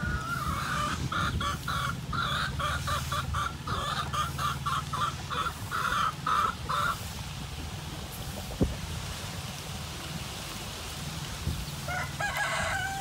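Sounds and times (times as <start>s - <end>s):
chicken clucking: 0.0s - 7.2s.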